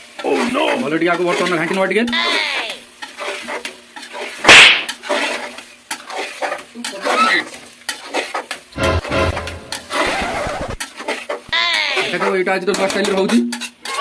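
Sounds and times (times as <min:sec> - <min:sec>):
metal ladle scraping pot: 0:03.0 - 0:11.4.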